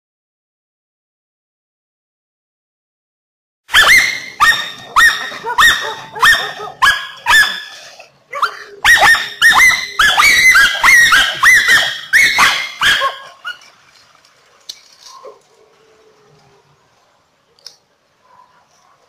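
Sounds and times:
dog barking: 3.7 - 7.8, 8.4 - 13.6, 18.2 - 19.0.

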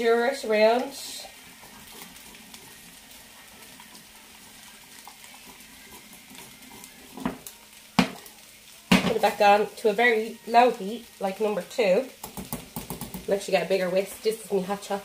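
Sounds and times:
spoon stirring thick soup: 1.3 - 7.5, 12.2 - 13.3.

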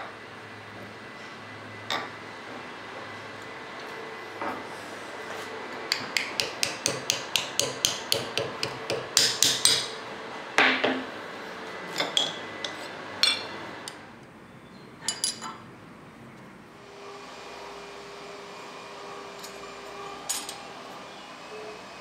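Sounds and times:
hammer tapping copper sheet: 5.9 - 9.9.

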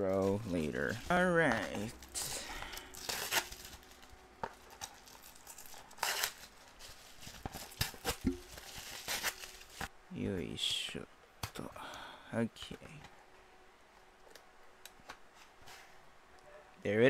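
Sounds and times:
bubble wrap crinkling and tearing: 0.0 - 9.9.

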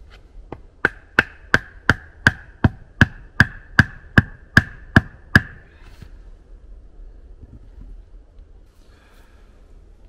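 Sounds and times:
rapid hammering knocks: 0.5 - 5.6.

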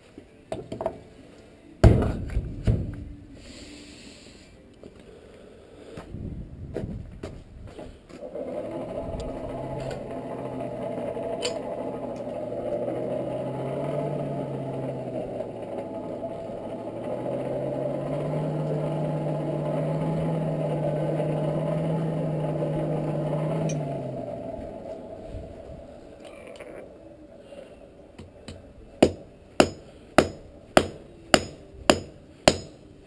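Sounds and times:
hand-cranked blower whirring: 8.2 - 25.2.

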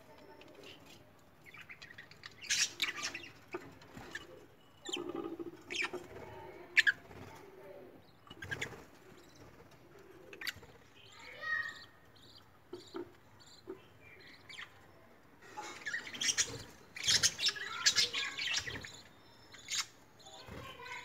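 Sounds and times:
bird chirping softly: 0.0 - 21.0.

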